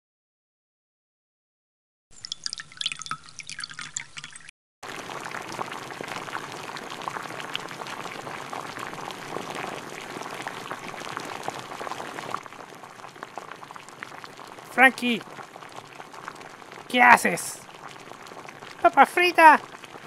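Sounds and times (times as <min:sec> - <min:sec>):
oil pouring into a pot: 0:02.2 - 0:17.0, 0:17.6 - 0:18.8, 0:19.6 - 0:20.0
potatoes deep-frying sizzle: 0:04.8 - 0:20.0.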